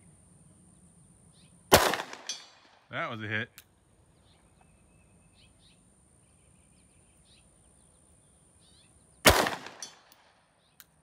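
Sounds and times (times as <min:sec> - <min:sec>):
pistol shot: 0:01.7 - 0:02.6, 0:09.2 - 0:10.4
faint bird chirps: 0:04.0 - 0:09.3.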